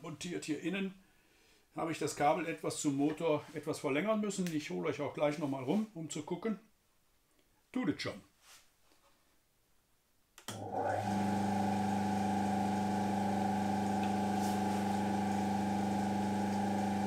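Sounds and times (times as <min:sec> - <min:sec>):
electric motor humming: 0:10.6 - 0:17.0.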